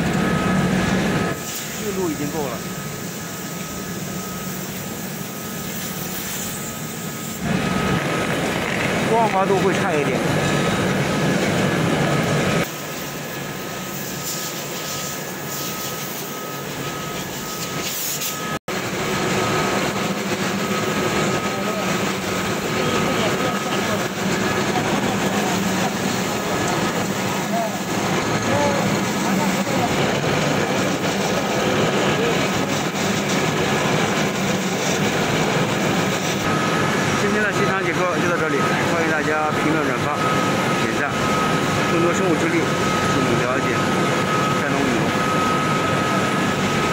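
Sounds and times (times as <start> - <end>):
faint high whine: 0.0 - 46.9
mechanical drone of mills: 0.0 - 46.9
low machine hum: 18.4 - 46.9.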